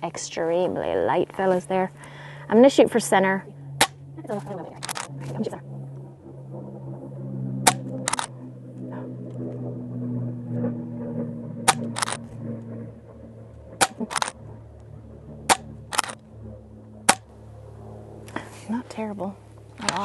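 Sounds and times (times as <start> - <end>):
low steady hum: 0.0 - 20.0
air rifle shot crack: 7.6 - 8.3, 11.6 - 12.2, 13.8 - 14.3, 17.0 - 17.3.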